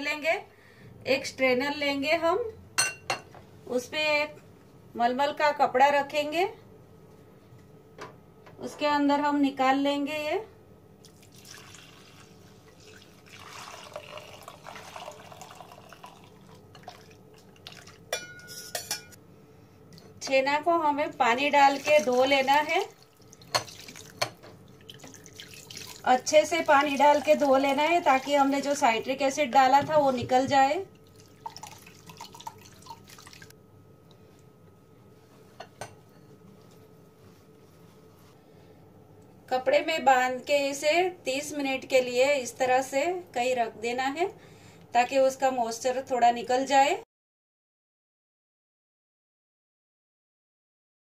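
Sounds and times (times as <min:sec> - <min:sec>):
liquid splashing and trickling: 0:11.0 - 0:18.1, 0:21.6 - 0:28.8, 0:31.0 - 0:33.5
water dripping into bowl: 0:21.8 - 0:28.7, 0:31.0 - 0:33.5.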